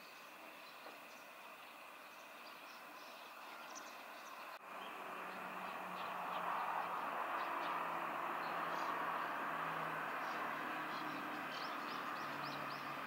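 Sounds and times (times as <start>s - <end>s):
small birds chirping: 0.0s - 13.0s
distant vehicle rumble: 3.0s - 13.0s.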